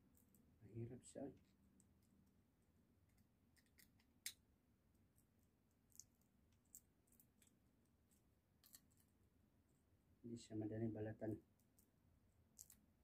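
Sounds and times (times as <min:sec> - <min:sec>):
seed shells cracking: 0:03.1 - 0:04.4, 0:05.7 - 0:07.6, 0:08.6 - 0:09.1, 0:11.6 - 0:13.0.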